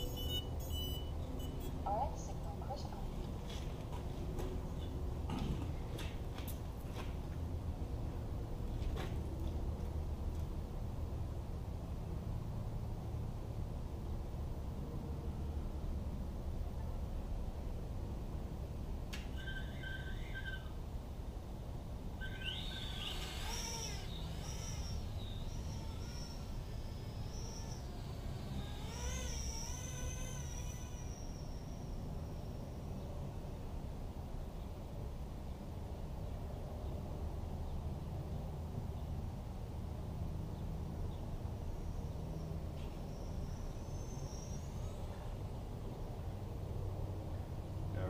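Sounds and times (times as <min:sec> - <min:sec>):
drone motors whining: 0:00.0 - 0:02.5, 0:19.0 - 0:21.2, 0:22.0 - 0:34.2, 0:41.0 - 0:46.5
outdoor background noise: 0:00.0 - 0:48.0.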